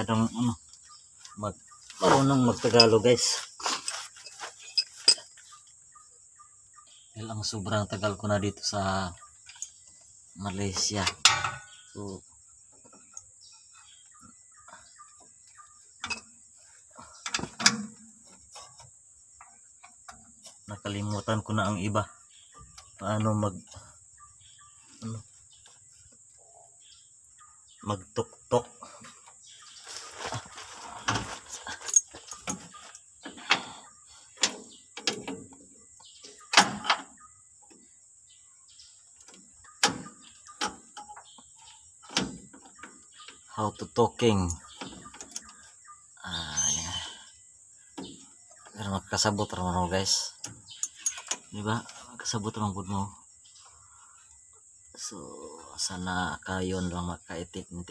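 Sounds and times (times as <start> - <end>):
metallic clicks and knocks: 11.0 - 11.7, 50.4 - 51.5.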